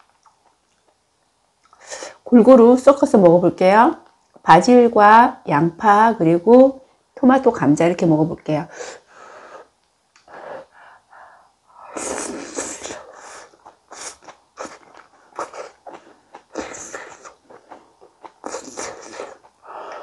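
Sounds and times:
chewing with wet mouth clicks: 0.0 - 1.0, 13.5 - 19.6.

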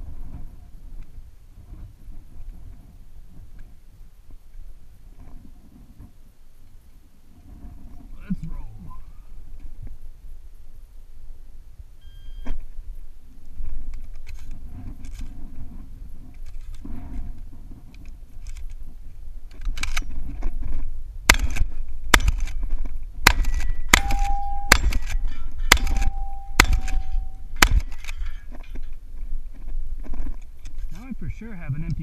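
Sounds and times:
rustling: 12.4 - 31.4
shotgun shells loading clicks: 19.5 - 20.1, 23.3 - 29.0
shotgun shots: 21.3 - 22.6, 23.2 - 28.2
steel targets ringing: 23.3 - 28.4.

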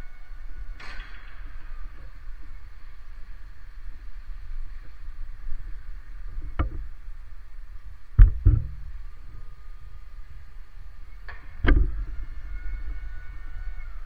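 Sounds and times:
low uneven rumble: 0.0 - 14.0.

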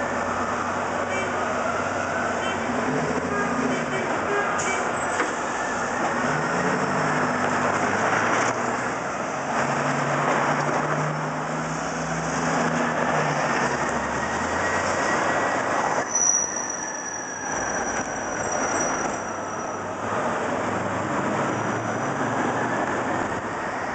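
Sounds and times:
heavy vehicles passing: 0.0 - 16.1, 18.3 - 23.9
high steady squeal: 14.0 - 19.9.

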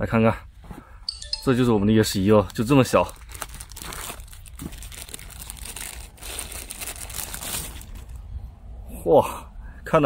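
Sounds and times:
plastic bag crinkling: 2.2 - 8.2.

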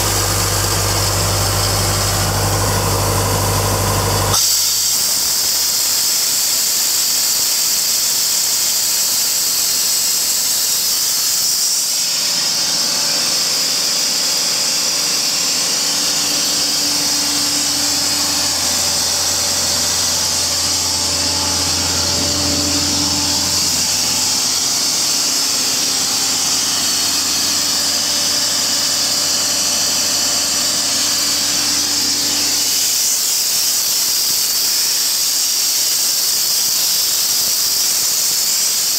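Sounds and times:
diesel engine running: 0.0 - 4.4, 14.9 - 33.5
compressed air hissing: 0.0 - 38.9.

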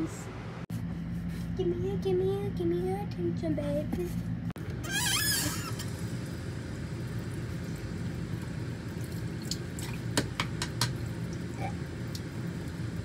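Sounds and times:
steady low hum: 0.0 - 4.9, 5.5 - 13.0
tap water running into sink: 5.5 - 13.0.

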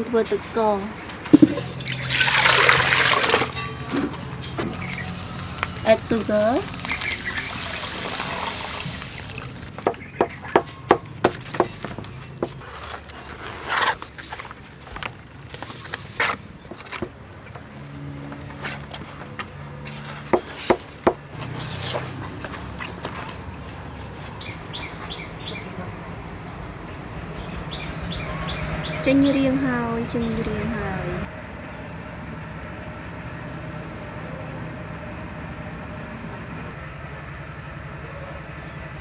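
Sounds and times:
leaf rustling: 1.3 - 9.7.

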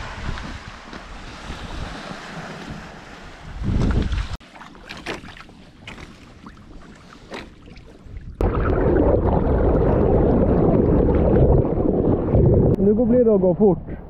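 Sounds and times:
wind on microphone: 0.0 - 4.4, 8.0 - 12.9
water rushing and splashing: 0.0 - 12.8.

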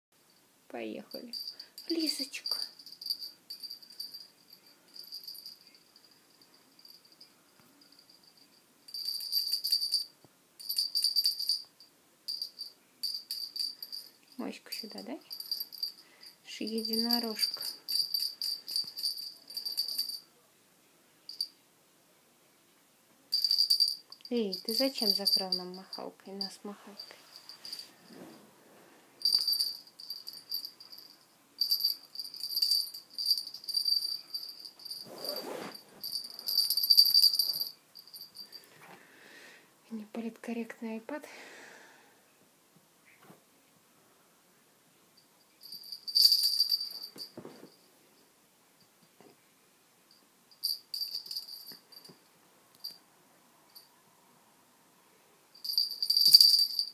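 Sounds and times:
cat toy jingling rattle: 1.1 - 6.1, 7.9 - 11.7, 12.3 - 14.4, 15.2 - 20.2, 23.3 - 28.3, 29.2 - 38.7, 45.6 - 47.4, 50.6 - 52.1, 55.6 - 56.9
rustle: 33.8 - 39.5.

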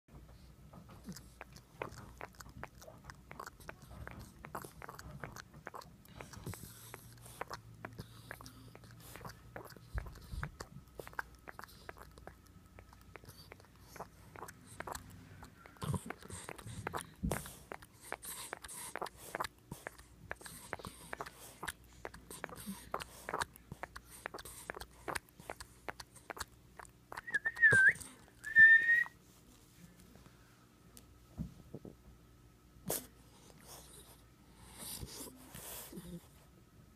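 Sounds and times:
puppy sucking wet clicks: 0.7 - 28.2
high whistle-like puppy tones: 27.2 - 29.2.

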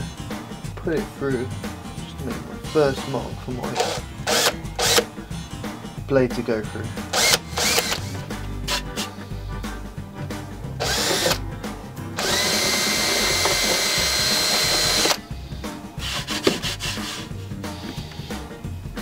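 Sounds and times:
power drill whining: 3.8 - 5.1, 7.1 - 8.8, 10.8 - 11.4, 12.2 - 15.2
knocks and rubbing of board: 16.0 - 18.1.

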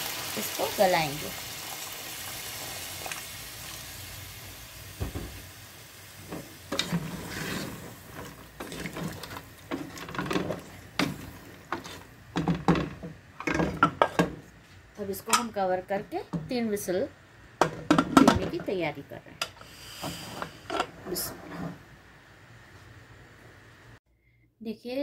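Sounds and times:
water sizzling in a pot: 0.0 - 13.0, 19.5 - 21.8
wooden spoon scraping a pot: 6.3 - 14.3, 20.0 - 21.8.

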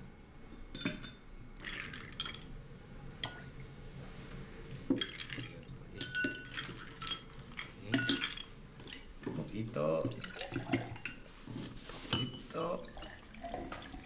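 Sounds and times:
glasses and dishes clinking: 0.5 - 2.5, 3.2 - 3.6, 4.8 - 11.3, 12.1 - 14.0.

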